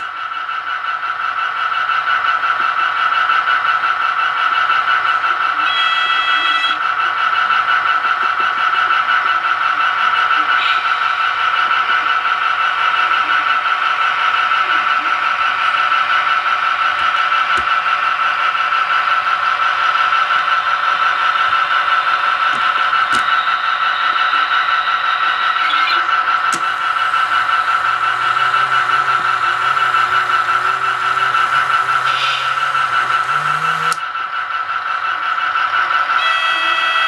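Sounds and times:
model railcar motor whine: 0.0 - 37.0
low hum rising in pitch: 26.5 - 34.0.

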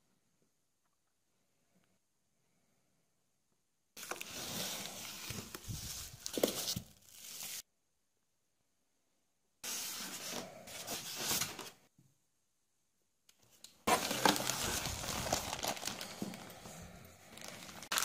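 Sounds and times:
plastic wrap crinkling: 13.9 - 18.0.

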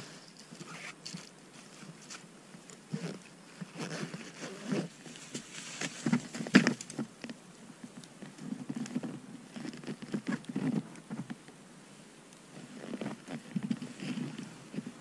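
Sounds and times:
rustling and crunching in snow: 0.0 - 7.4, 12.5 - 15.0.

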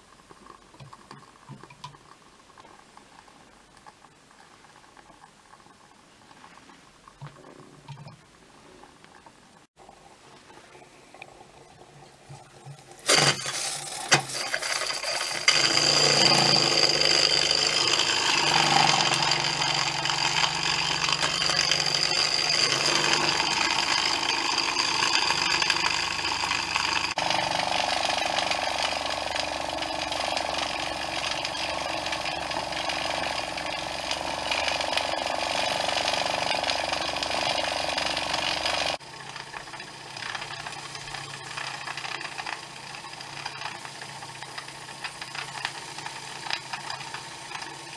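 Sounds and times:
model steam engine chuffing: 13.1 - 47.9.

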